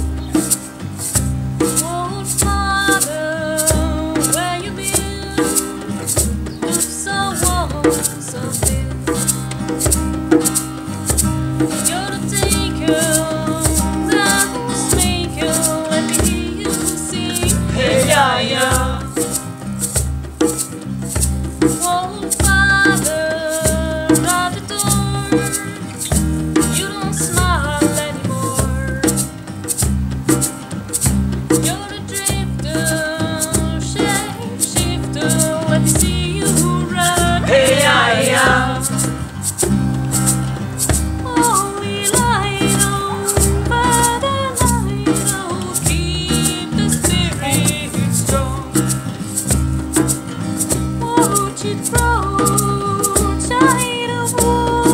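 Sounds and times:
acoustic guitar: 0:00.0 - 0:54.9
shaker rhythm: 0:00.0 - 0:54.9
voices singing: 0:12.4 - 0:19.4, 0:33.9 - 0:39.7, 0:41.3 - 0:48.7
electric bass: 0:35.9 - 0:41.4.

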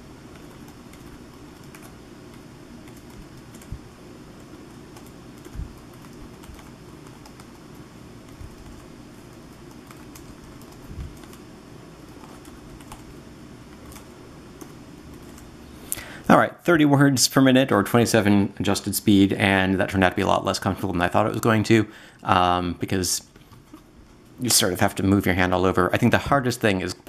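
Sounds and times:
steady low hum: 0:00.0 - 0:27.0
laptop keys clicking: 0:00.3 - 0:03.8, 0:04.4 - 0:11.4, 0:12.0 - 0:13.1, 0:13.7 - 0:15.5.

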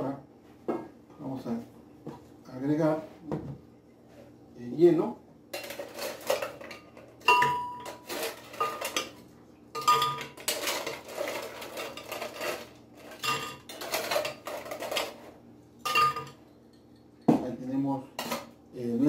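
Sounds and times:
ice clattering on metal: 0:05.6 - 0:09.2, 0:09.8 - 0:15.3.

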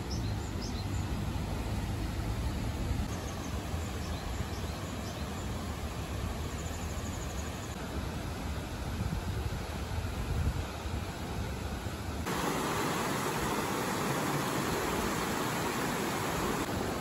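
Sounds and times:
river rushing over rocks: 0:11.8 - 0:17.0.

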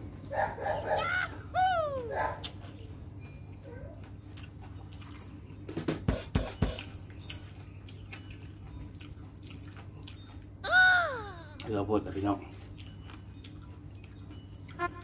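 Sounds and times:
mouth chewing food: 0:02.1 - 0:05.7, 0:06.8 - 0:10.7, 0:12.4 - 0:15.0.

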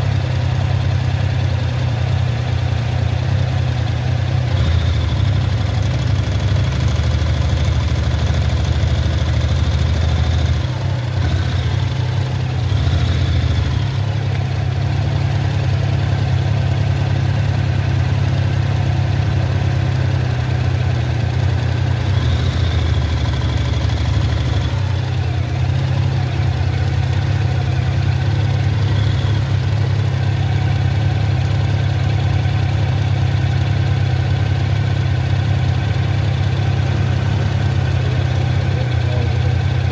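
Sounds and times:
motorcycle engines idling: 0:00.0 - 0:39.9.

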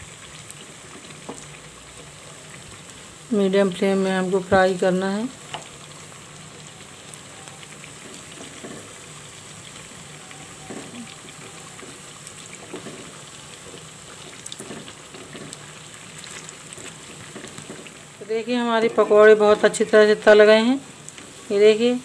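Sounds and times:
deep-frying in hot oil: 0:00.0 - 0:22.0
wooden spatula knocking on pan: 0:08.4 - 0:08.9, 0:10.7 - 0:11.0, 0:12.7 - 0:13.1.

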